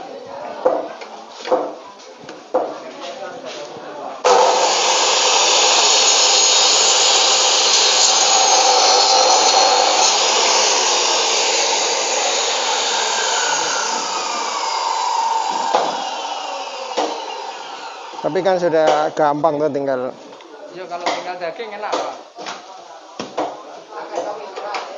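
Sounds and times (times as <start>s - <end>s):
saw cutting through bone: 4.3s - 18.3s.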